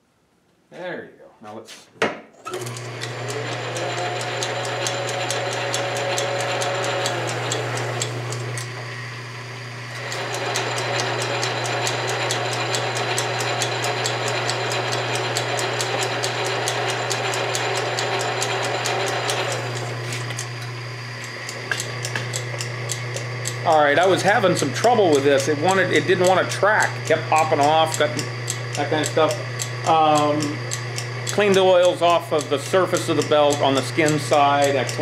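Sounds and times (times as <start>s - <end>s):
lathe motor hum: 2.5s - 35.0s.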